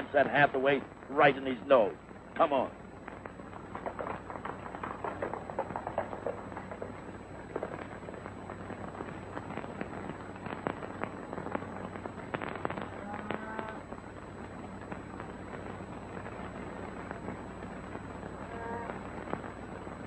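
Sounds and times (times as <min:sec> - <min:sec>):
old film soundtrack hiss: 0:00.0 - 0:20.0
horse hoofbeats on trail: 0:03.5 - 0:07.8.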